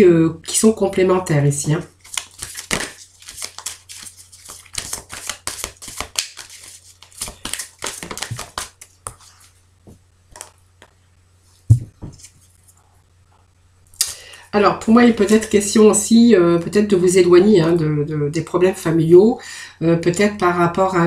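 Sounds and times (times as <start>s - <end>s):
cards being shuffled: 2.0s - 9.6s, 10.3s - 11.0s, 11.7s - 12.8s
soft thump: 11.7s - 12.2s.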